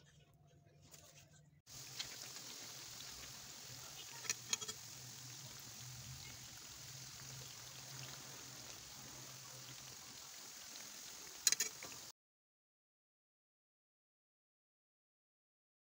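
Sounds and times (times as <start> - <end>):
potatoes sizzling in hot oil: 1.7 - 12.1.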